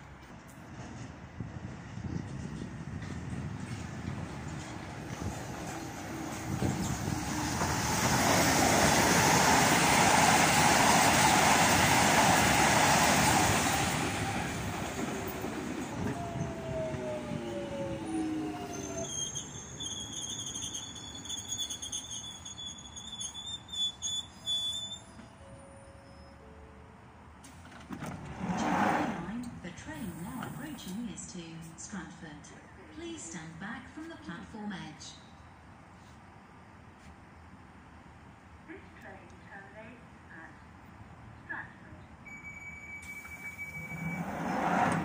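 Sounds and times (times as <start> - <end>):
train rail noise rushing: 0.0 - 22.9, 27.4 - 31.2, 42.4 - 45.0
high-pitched train whine: 4.8 - 23.4, 42.2 - 45.0
train motor whine braking: 15.9 - 21.8, 42.3 - 45.0.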